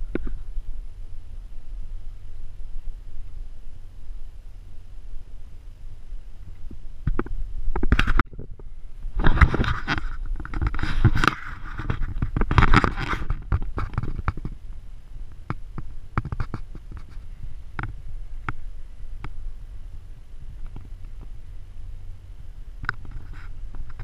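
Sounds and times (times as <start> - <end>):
low rumble: 0.0 - 24.0
camera handling scrapes: 9.2 - 14.5.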